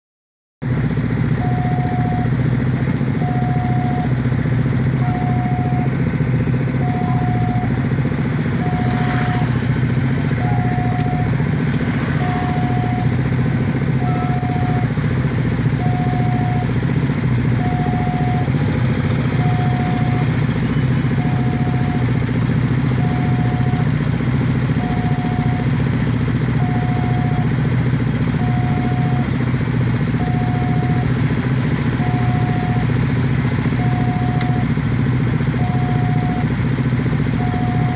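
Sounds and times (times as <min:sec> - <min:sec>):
motorcycle engines idling: 0:00.6 - 0:37.9
level crossing warning bell: 0:01.4 - 0:02.4, 0:03.2 - 0:04.2, 0:04.9 - 0:06.0, 0:06.8 - 0:07.9, 0:08.5 - 0:09.4, 0:10.2 - 0:11.4, 0:12.1 - 0:13.3, 0:13.9 - 0:14.9, 0:15.8 - 0:16.8, 0:17.5 - 0:18.6, 0:19.3 - 0:20.4, 0:21.1 - 0:22.2, 0:22.9 - 0:24.0, 0:24.7 - 0:25.8, 0:26.5 - 0:27.6, 0:28.3 - 0:29.3, 0:30.2 - 0:31.2, 0:31.9 - 0:33.0, 0:33.7 - 0:34.9, 0:37.3 - 0:37.9.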